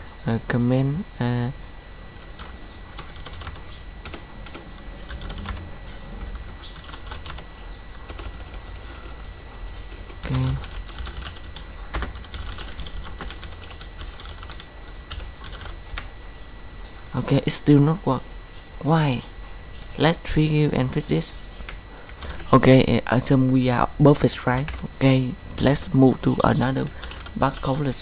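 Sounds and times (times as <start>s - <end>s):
keyboard typing clicks: 2.4s - 9.1s, 9.9s - 16.1s.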